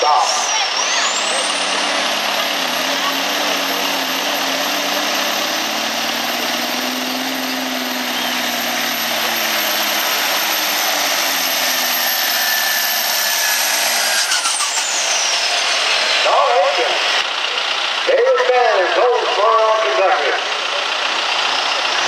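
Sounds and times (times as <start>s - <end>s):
engine whine falling in pitch: 0.0s - 17.3s
diesel truck engine under full load: 0.0s - 22.0s.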